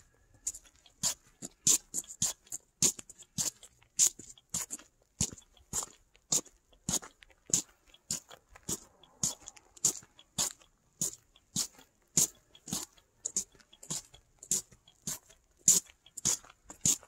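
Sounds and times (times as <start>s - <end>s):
footsteps crunching on snow: 7.0s - 15.3s.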